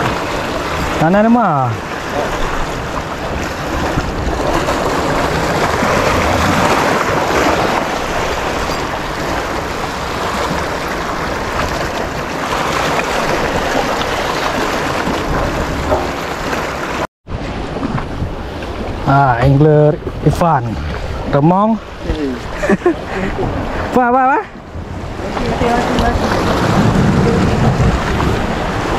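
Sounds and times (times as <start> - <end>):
wind on the microphone: 0.0 - 16.6, 17.3 - 28.9
sea waves breaking on rocks: 0.0 - 28.9.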